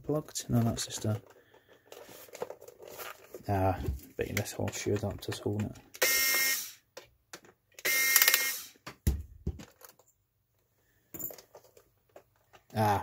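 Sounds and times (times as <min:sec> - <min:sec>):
electric screwdriver motor whirring: 0:06.0 - 0:06.8, 0:07.8 - 0:08.8.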